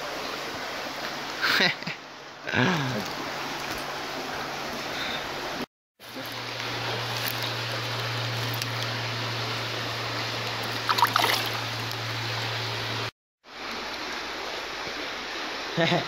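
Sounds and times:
shallow stream running: 0.0 - 16.0
hand splashing in water: 10.8 - 11.8.

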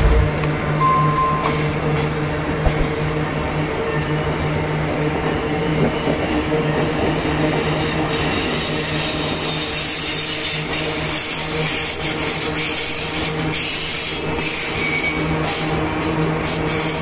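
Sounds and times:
freight train wheels rumbling on rails: 0.0 - 17.0
wheel squeal: 8.1 - 15.8.

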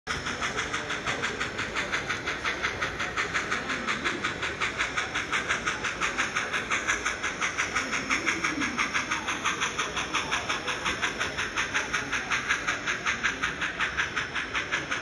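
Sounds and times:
model steam locomotive chuffing: 0.1 - 15.0.

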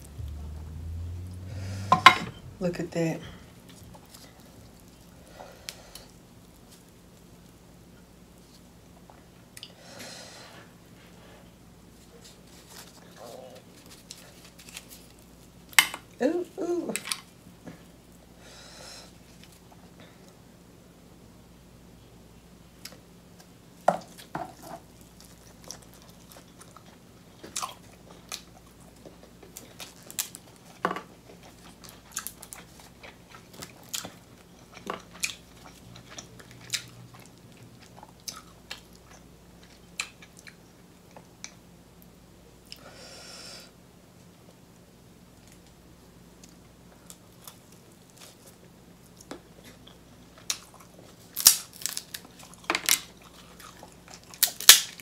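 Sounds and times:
close chewing: 24.1 - 41.6, 46.4 - 55.0
crab shell cracking: 51.3 - 53.1, 54.3 - 55.0.

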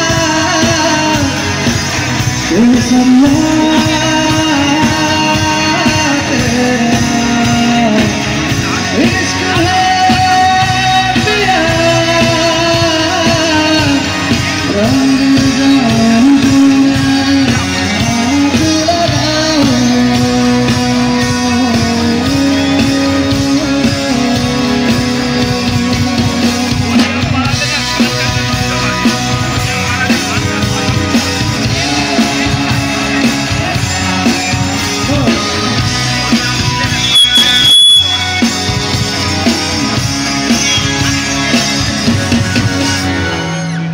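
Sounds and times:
man singing: 0.0 - 29.2
drums: 0.0 - 43.9
electric guitars: 0.0 - 43.9
keyboard: 0.0 - 43.9.

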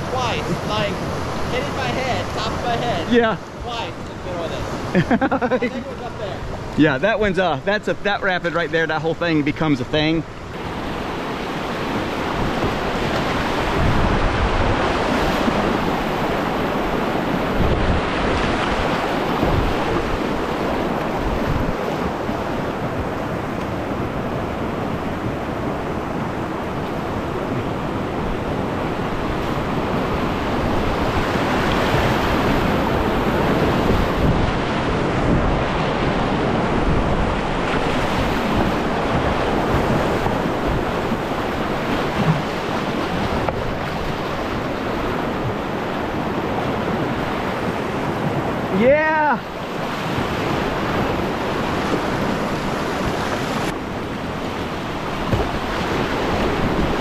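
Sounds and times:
whitewater rushing over rocks: 0.0 - 5.0, 28.0 - 57.0
wind buffeting on microphone: 0.0 - 57.0.

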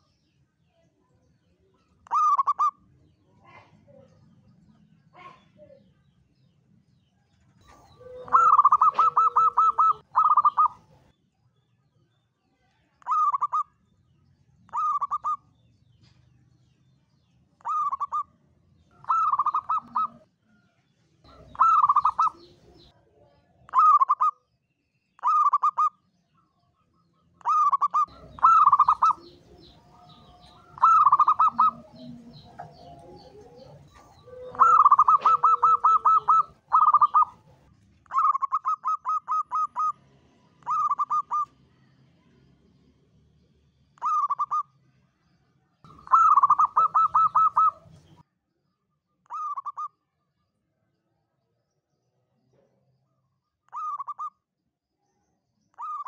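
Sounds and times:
dove cooing: 2.1 - 2.8, 7.6 - 11.1, 13.1 - 13.6, 14.7 - 15.4, 17.6 - 18.3, 18.9 - 20.3, 21.3 - 22.9, 27.4 - 40.0, 40.6 - 41.5, 44.0 - 44.6, 45.9 - 48.2, 49.3 - 49.9, 53.7 - 54.3.

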